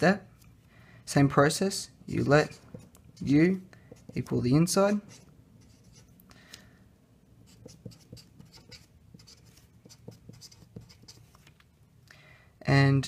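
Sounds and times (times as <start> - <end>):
marker writing on paper: 2.2 - 4.4, 5.0 - 6.2, 7.4 - 11.4.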